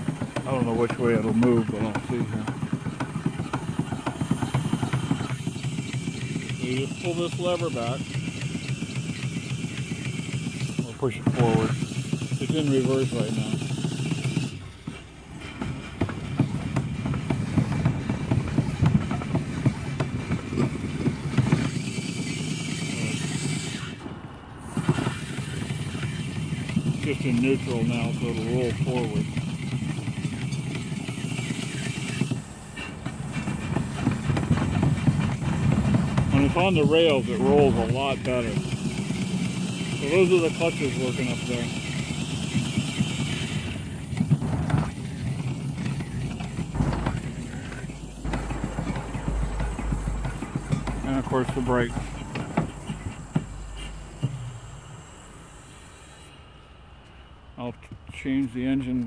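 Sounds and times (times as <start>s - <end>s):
steam engine low rumble: 0.0s - 59.0s
low hum: 43.6s - 59.0s.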